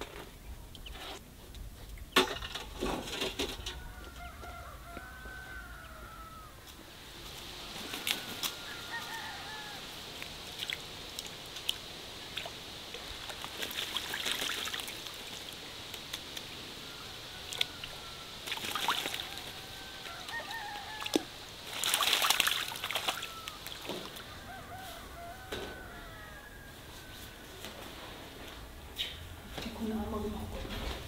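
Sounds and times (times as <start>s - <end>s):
distant chickens calling: 3.1s - 13.2s, 15.2s - 29.5s
water dripping: 10.1s - 16.5s, 17.4s - 24.2s
bird splashing in water: 10.2s - 16.3s, 17.4s - 24.2s.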